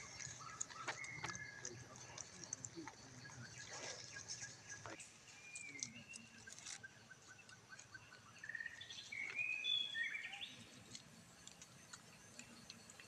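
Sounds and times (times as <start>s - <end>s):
faint ticks and rustles: 0.0s - 9.7s, 10.4s - 13.0s
birds whistling and trilling: 0.0s - 11.0s.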